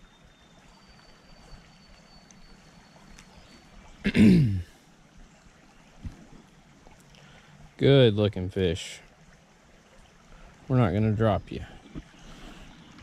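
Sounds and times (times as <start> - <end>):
creek trickling: 0.0 - 13.0
man clearing his throat: 4.1 - 4.7.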